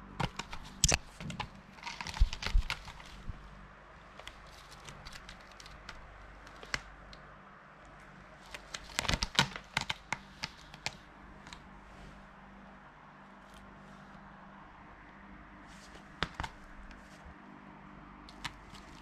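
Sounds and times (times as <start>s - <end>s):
cat claws scratching sisal rope: 4.1s - 7.2s, 18.3s - 19.0s.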